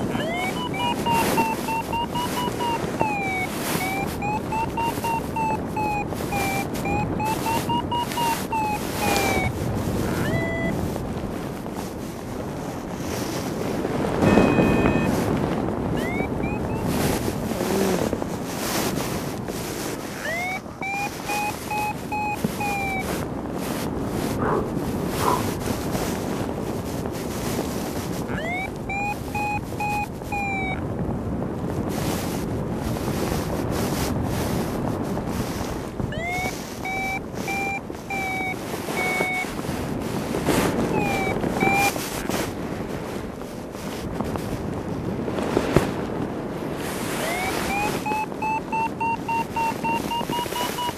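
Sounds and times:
variometer beeping: 0.0s - 11.0s, 14.2s - 15.4s, 16.0s - 18.0s, 20.1s - 23.2s, 28.3s - 30.8s, 36.0s - 39.7s, 40.7s - 42.0s, 47.2s - 50.9s
wind rushing over microphone: 0.0s - 50.9s.

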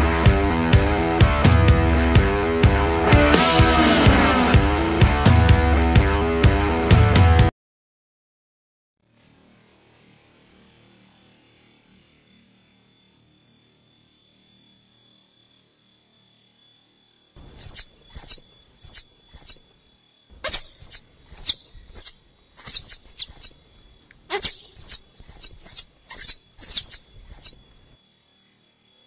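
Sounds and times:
faint steady high tone: 11.5s - 29.0s
squirrel call chirps: 17.4s - 19.8s, 20.4s - 27.8s.

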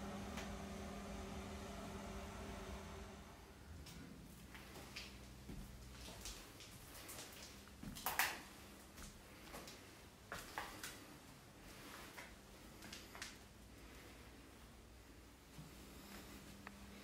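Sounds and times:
footsteps on hard floor: 4.6s - 8.0s.

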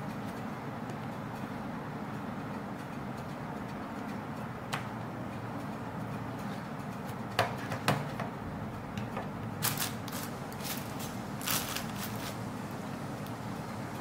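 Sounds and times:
plastic bag crinkling: 9.6s - 12.4s.

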